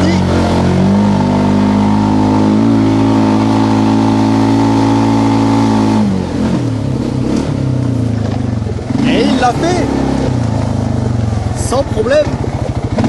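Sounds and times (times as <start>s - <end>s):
quad bike engine revving: 0.0s - 13.0s.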